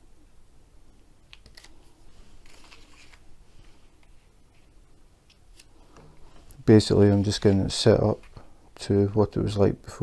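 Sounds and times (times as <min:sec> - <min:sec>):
paper rustling and crinkling: 0:01.4 - 0:04.7.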